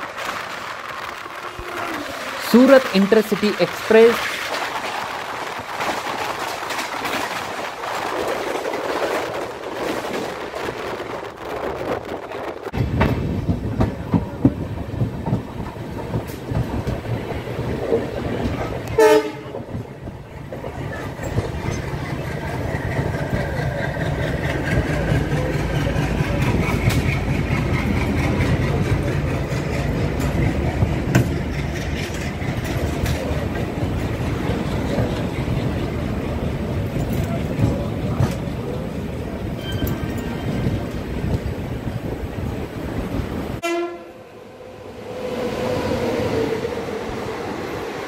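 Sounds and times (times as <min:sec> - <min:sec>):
wheels clacking over rail joints: 0:00.0 - 0:43.6
train wheels rumbling: 0:00.0 - 0:48.0
train horn blast: 0:19.0 - 0:19.6, 0:43.6 - 0:44.3.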